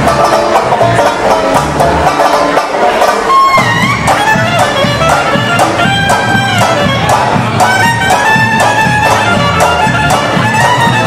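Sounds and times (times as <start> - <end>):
banjo: 0.0 - 11.0
bass drum beat: 0.0 - 11.0
plucked double bass: 0.0 - 11.0
clarinets playing melody: 3.2 - 11.0.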